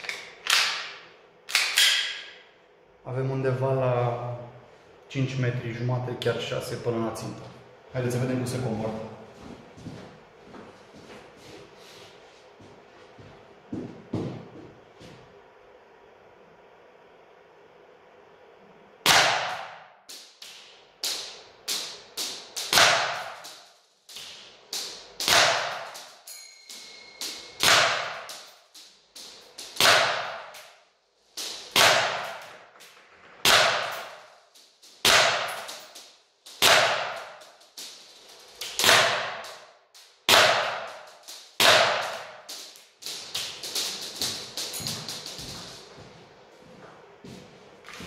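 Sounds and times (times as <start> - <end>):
airsoft pistol shots: 19.0 - 19.9, 22.5 - 23.6, 25.2 - 26.1, 27.6 - 28.5, 29.8 - 30.7, 31.7 - 32.5, 33.4 - 34.2, 35.0 - 35.9, 36.6 - 37.5, 38.7 - 39.7, 40.3 - 42.5.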